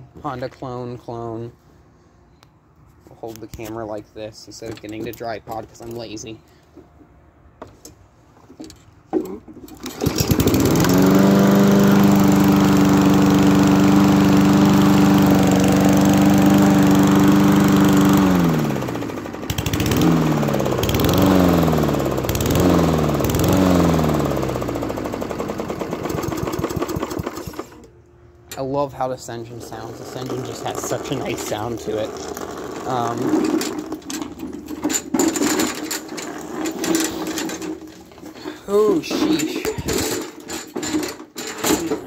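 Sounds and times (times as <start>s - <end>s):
lawn mower engine running: 9.7s - 27.9s, 28.5s - 42.0s.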